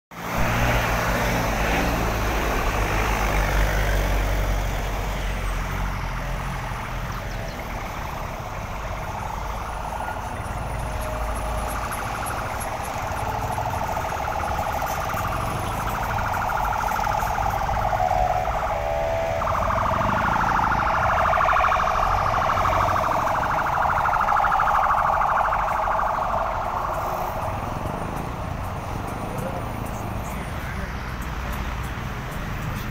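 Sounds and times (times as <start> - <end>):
vehicle engines running: 0.1 - 32.9.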